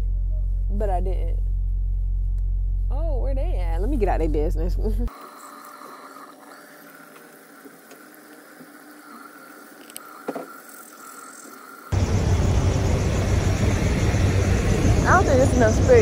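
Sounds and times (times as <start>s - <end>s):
small clicks: 7.1s - 11.3s
diesel truck engines idling: 12.0s - 16.0s.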